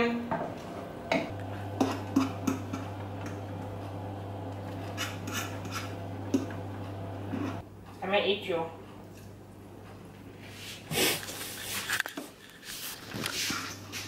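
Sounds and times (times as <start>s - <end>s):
steady low hum: 0.4s - 10.5s
utensils scraping saucepans: 4.6s - 7.6s.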